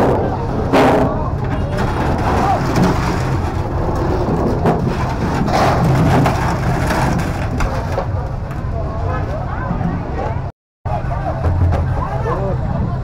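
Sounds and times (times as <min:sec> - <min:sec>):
knocks and clatter: 0:00.0 - 0:08.7.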